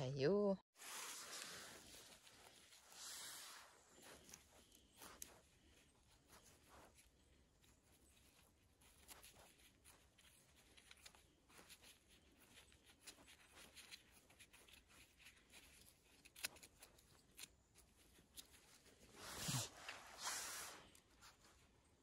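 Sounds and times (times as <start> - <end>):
rustling swish: 0.8 - 4.4, 19.1 - 21.5.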